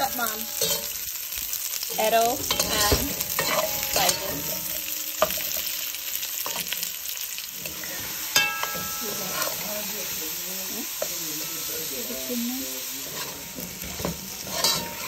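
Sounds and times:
vegetables sizzling in oil: 0:00.0 - 0:15.0
metal spoon scraping pan: 0:00.4 - 0:01.1, 0:01.9 - 0:07.0, 0:07.6 - 0:10.1, 0:13.0 - 0:15.0
ringing spoon clink: 0:08.4 - 0:09.5.

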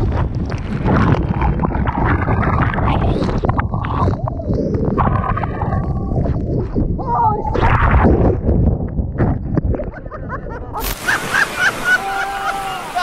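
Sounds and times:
wind buffeting microphone: 0:00.0 - 0:11.1
whitewater rushing and splashing: 0:10.8 - 0:13.0.

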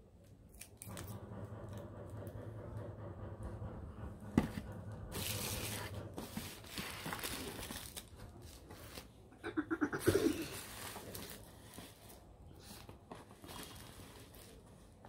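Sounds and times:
plastic wrap crinkling: 0:05.2 - 0:09.1, 0:10.4 - 0:15.0.

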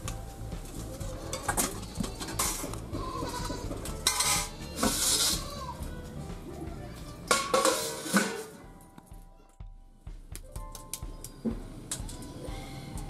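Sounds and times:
metal utensils clinking against wok: 0:00.6 - 0:02.8, 0:03.4 - 0:05.6, 0:07.3 - 0:08.6
goat bleating: 0:01.2 - 0:05.9.

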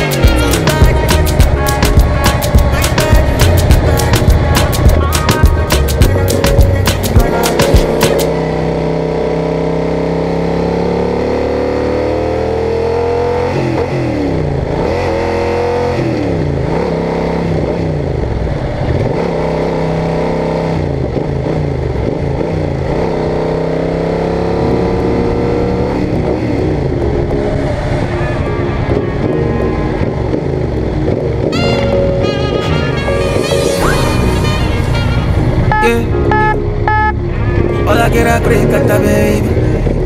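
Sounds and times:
motorcycle engine revving: 0:00.0 - 0:29.3.

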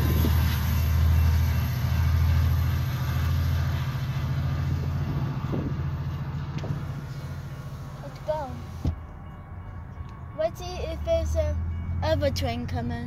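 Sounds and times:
train rumbling low: 0:00.0 - 0:13.0.

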